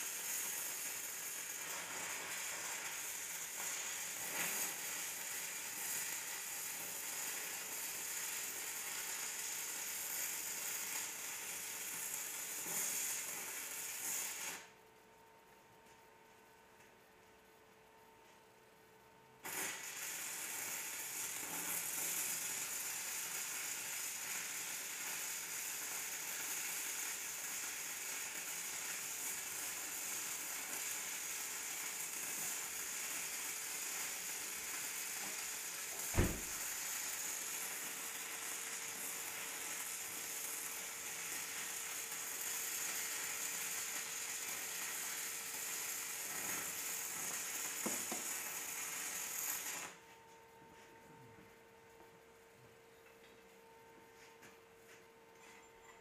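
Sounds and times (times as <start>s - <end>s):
welding arc crackling and sizzling: 0.0s - 14.8s, 19.1s - 50.1s
sharp pop: 36.1s - 36.6s.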